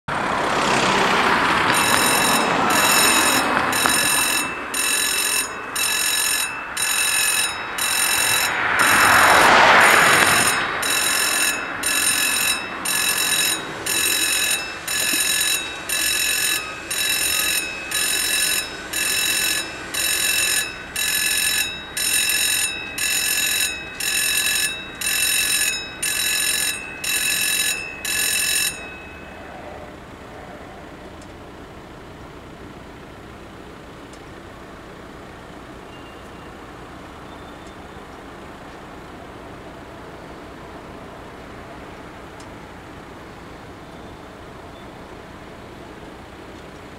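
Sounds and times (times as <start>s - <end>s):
road vehicle passing: 0.1s - 46.9s
level crossing bells ringing: 1.2s - 38.0s.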